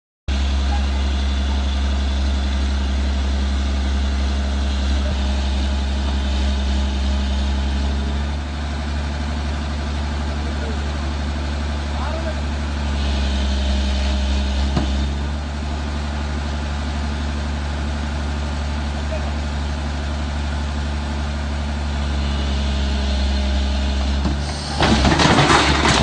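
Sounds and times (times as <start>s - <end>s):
diesel engine deep hum: 0.3s - 26.0s
bucket pushing against ground: 24.2s - 26.0s.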